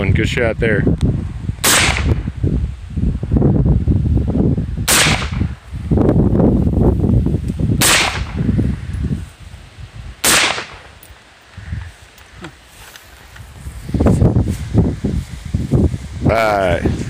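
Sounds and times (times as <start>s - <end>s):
rifle shots: 1.6s - 2.3s, 4.9s - 5.5s, 7.8s - 8.4s, 10.2s - 11.0s.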